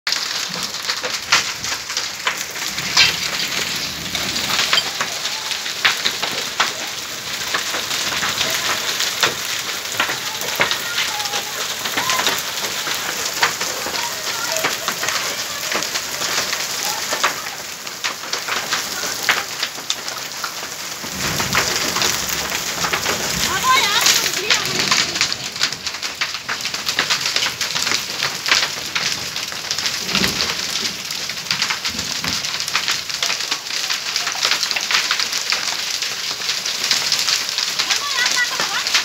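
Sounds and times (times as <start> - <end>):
hail and rain on concrete: 0.1 - 39.0
hailstones clicking: 0.1 - 39.0.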